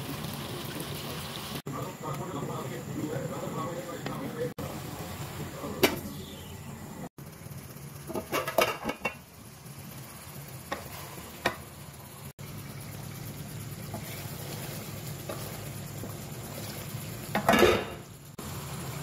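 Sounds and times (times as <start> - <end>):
gravy bubbling: 10.1 - 18.4.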